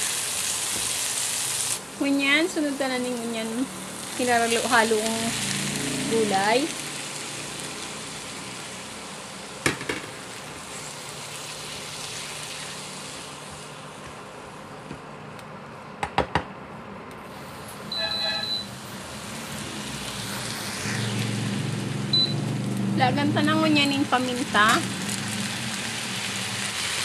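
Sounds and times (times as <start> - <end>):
vegetables sizzling in a pan: 0.0 - 14.6, 18.7 - 27.0
short electronic beep: 17.9 - 18.8, 22.1 - 22.4.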